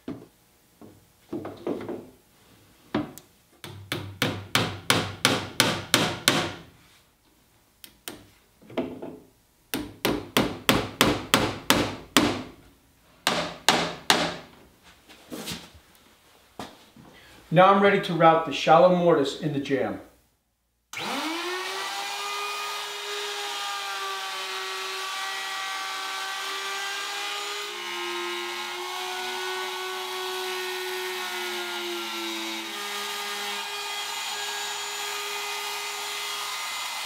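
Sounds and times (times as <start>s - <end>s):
router whining: 21.0s - 37.0s.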